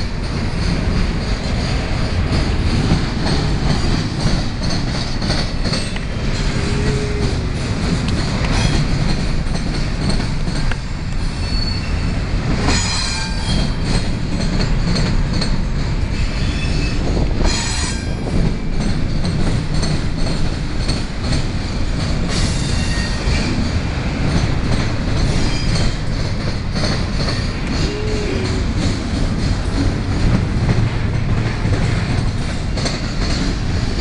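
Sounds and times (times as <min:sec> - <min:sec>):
train wheels rumbling on rails: 0:00.0 - 0:34.0
metallic wheel squeals: 0:11.4 - 0:12.1, 0:25.4 - 0:26.0.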